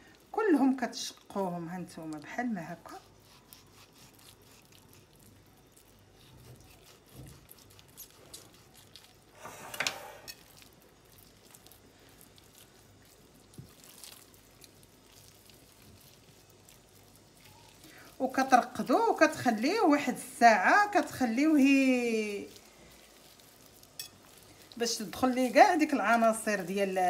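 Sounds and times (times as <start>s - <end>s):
hands squishing wet paste into meat: 2.0s - 9.4s, 10.4s - 19.5s.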